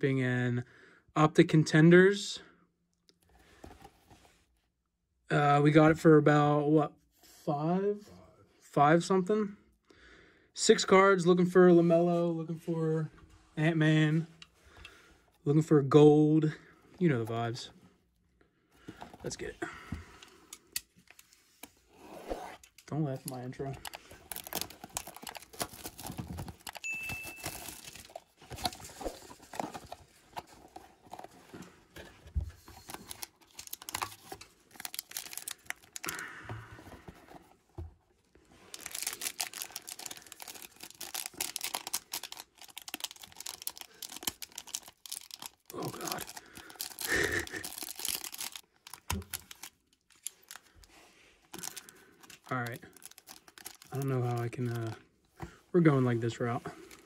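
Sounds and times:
wrapping tearing and crinkling: 23.1s - 31.6s, 32.6s - 36.4s, 38.6s - 55.0s.

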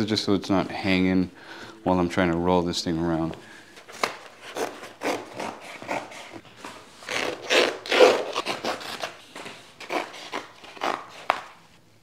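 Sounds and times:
scissors cutting canvas: 3.9s - 11.6s.

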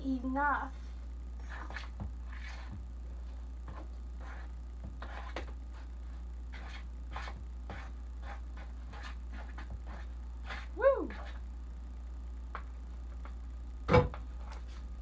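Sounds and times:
low hum: 0.0s - 15.0s
spoon stirring batter: 1.4s - 11.5s.

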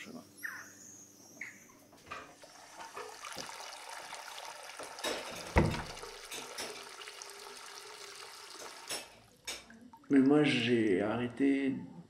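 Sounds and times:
liquid running: 2.3s - 10.9s
heavy thump: 5.6s - 6.0s.

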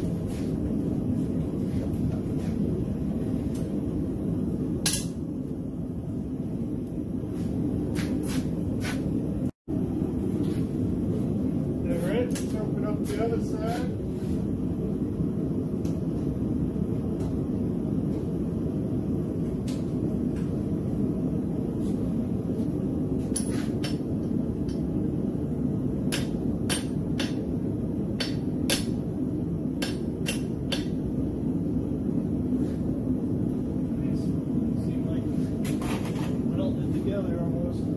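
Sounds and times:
steady rushing noise: 0.0s - 37.9s.

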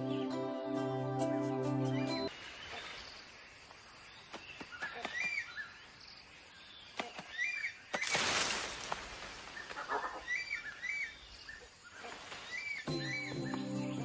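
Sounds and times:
rustle of leaves and branches: 2.3s - 13.3s
bird chirping: 9.4s - 14.0s.

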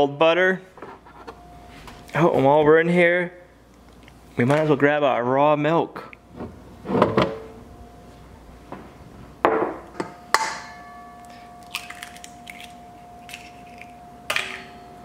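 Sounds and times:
metal bowl ringing: 10.0s - 15.0s.

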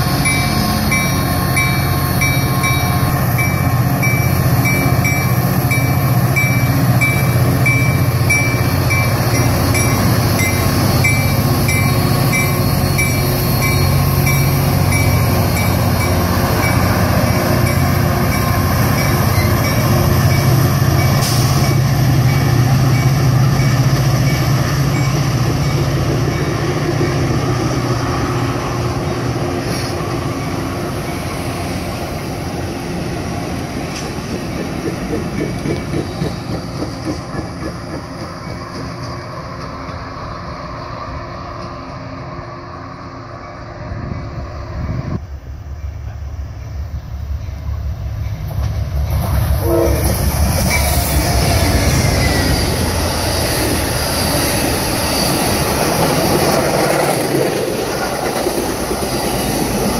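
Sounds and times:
train cars rattling: 0.0s - 40.1s, 45.7s - 59.9s
diesel locomotive engine hum: 0.0s - 59.9s
train wheels clattering on rails: 33.6s - 40.0s, 50.1s - 59.9s.

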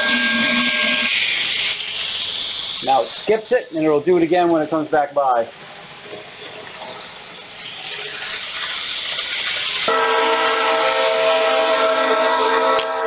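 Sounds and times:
multi-tone train horn: 0.0s - 1.1s, 9.8s - 13.0s
rushing noise: 0.0s - 3.8s.

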